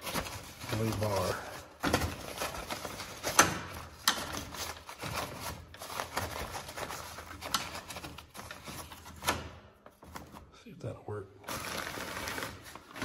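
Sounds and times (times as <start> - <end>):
paper rustling: 0.0 - 10.5, 11.4 - 13.0
towel dispenser clicks and rattles: 1.8 - 10.2.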